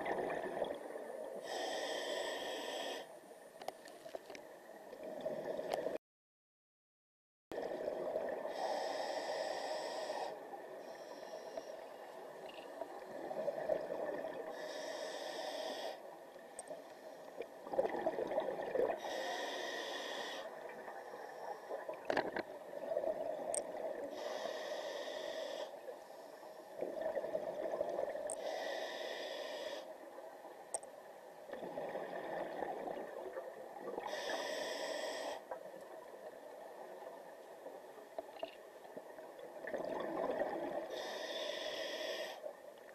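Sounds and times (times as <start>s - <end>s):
exhaled bubbles gurgling: 0.0s - 1.0s, 17.6s - 19.1s, 31.5s - 34.1s, 39.6s - 40.9s
regulator hissing inhale: 1.4s - 3.1s, 8.5s - 11.9s, 14.5s - 16.1s, 19.0s - 20.6s, 24.1s - 26.7s, 28.4s - 30.0s, 34.0s - 35.5s, 40.9s - 42.5s.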